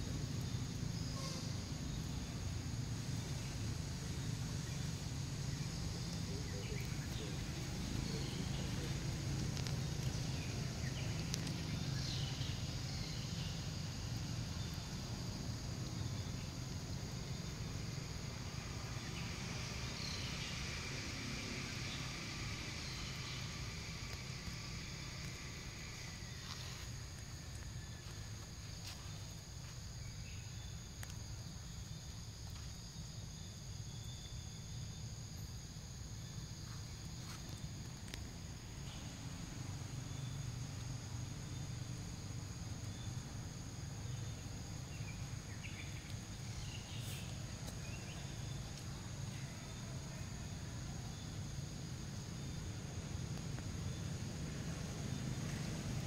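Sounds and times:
high-pitched insect chorus: 0:00.0 - 0:56.0
faint high chirping: 0:00.4 - 0:02.2
faint clicks: 0:31.0 - 0:31.2.

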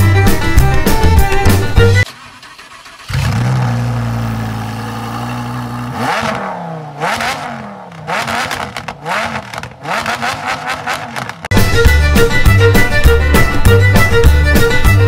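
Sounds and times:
sports car engine revving: 0:03.0 - 0:11.5.

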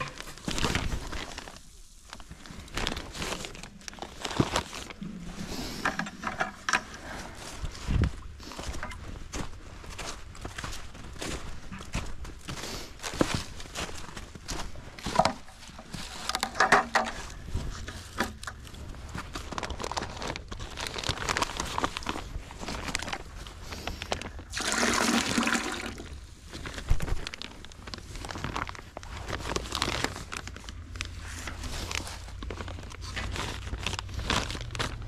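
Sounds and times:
plastic bag crinkling: 0:00.0 - 0:09.2, 0:13.2 - 0:35.0
handling and rustling: 0:00.0 - 0:35.0
sap pouring into bucket: 0:24.4 - 0:26.2.

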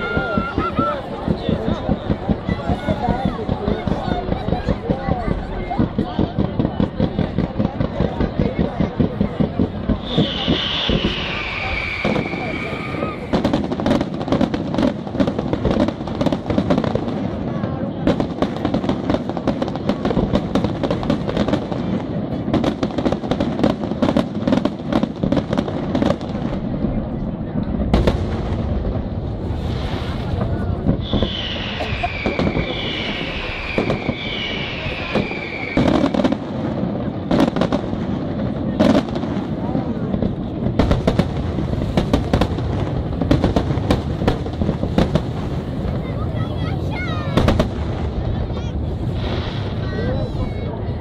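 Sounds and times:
fireworks bursting: 0:00.0 - 0:51.0
firework shells bursting: 0:09.2 - 0:16.8, 0:29.7 - 0:38.1.

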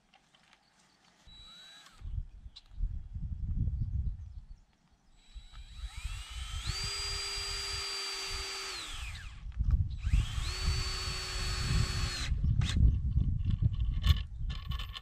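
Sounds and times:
cordless drill whine: 0:01.2 - 0:02.2, 0:05.2 - 0:12.9.

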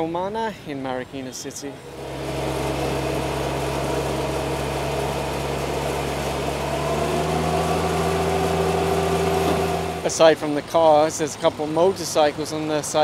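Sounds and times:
higher tone: 0:01.8 - 0:10.2
truck engine idling: 0:01.8 - 0:12.3.

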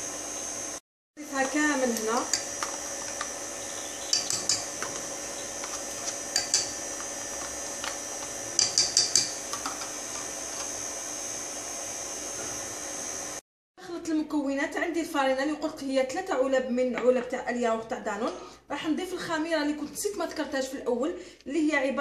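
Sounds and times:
stand mixer motor whine: 0:00.0 - 0:00.8, 0:01.4 - 0:13.4.

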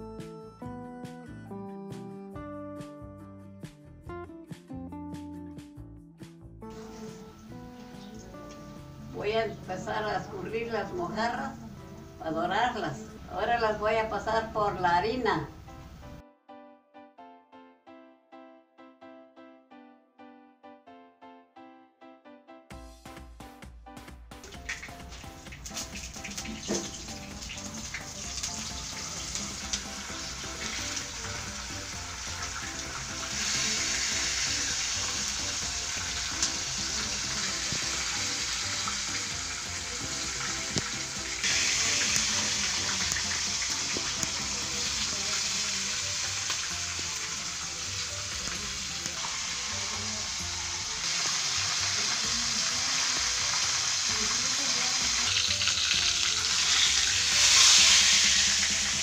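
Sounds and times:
fish frying in hot oil: 0:24.4 - 0:59.0.

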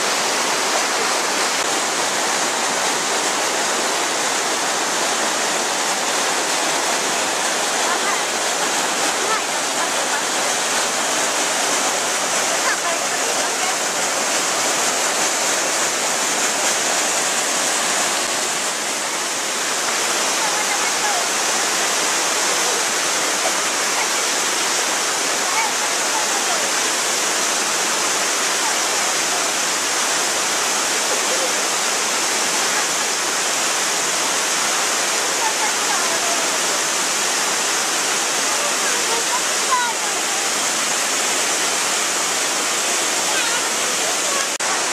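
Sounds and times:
waterfall rushing water: 0:00.0 - 0:44.9.

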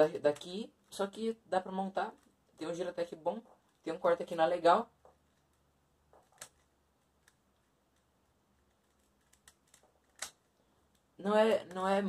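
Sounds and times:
puzzle cube clicking: 0:05.0 - 0:11.9.

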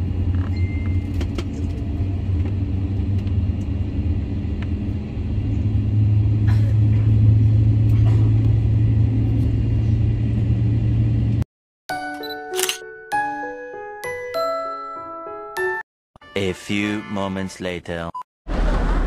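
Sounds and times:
airliner cabin rumble: 0:00.0 - 0:11.4.

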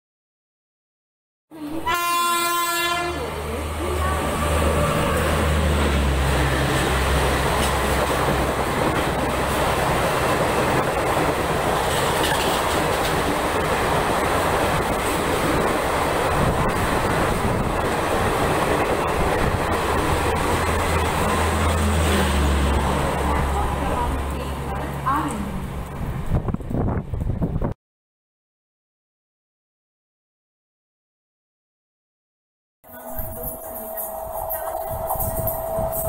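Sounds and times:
train horn: 0:01.5 - 0:05.6
train passing with low rumble: 0:01.5 - 0:27.8, 0:32.9 - 0:36.0.

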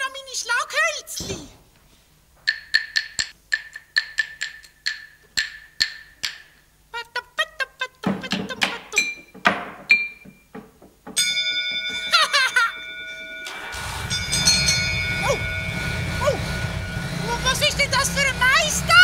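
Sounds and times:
wooden sticks clacking: 0:02.4 - 0:06.7, 0:07.8 - 0:11.2
steady held tone: 0:11.2 - 0:19.0
low rumbling noise: 0:13.7 - 0:19.0.

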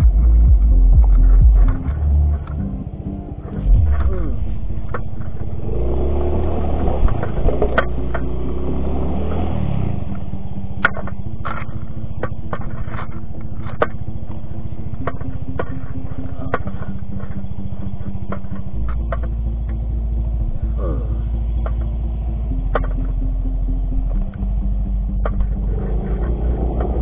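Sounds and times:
sharp clicks and knocks: 0:10.8 - 0:19.8, 0:21.6 - 0:22.0, 0:22.6 - 0:23.3, 0:25.1 - 0:27.0.

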